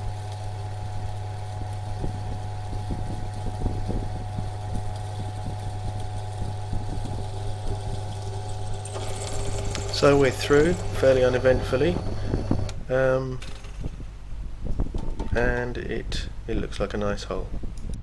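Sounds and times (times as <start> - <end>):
drill press running: 6.6 - 12.8
drill hissing through metal: 8.4 - 12.8
drill bit scraping metal: 8.6 - 12.8.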